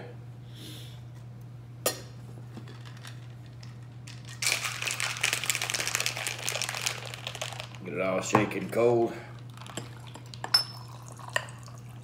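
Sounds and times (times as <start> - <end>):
ice rattling in cocktail shaker: 2.7 - 7.8, 8.7 - 11.8.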